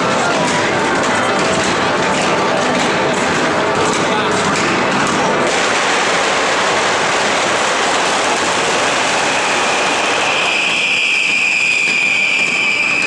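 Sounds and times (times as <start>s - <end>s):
fireworks hissing crackle: 5.5s - 13.0s
high firework whistle: 6.9s - 13.0s.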